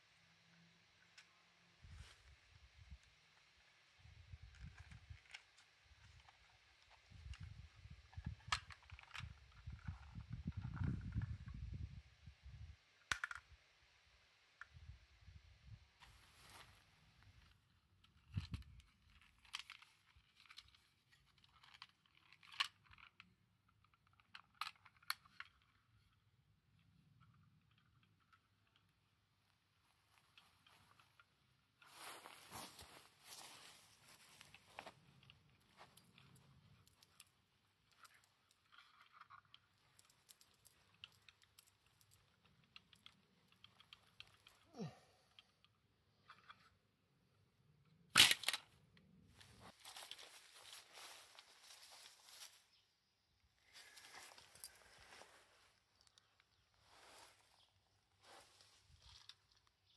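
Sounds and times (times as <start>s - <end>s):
plastic clicks and rattling: 4.5s - 11.4s, 13.0s - 13.6s, 18.0s - 26.2s, 34.4s - 44.7s.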